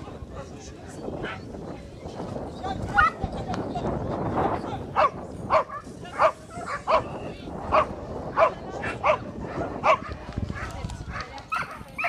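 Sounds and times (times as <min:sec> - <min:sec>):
dog barking: 0:05.0 - 0:07.1, 0:07.7 - 0:12.0.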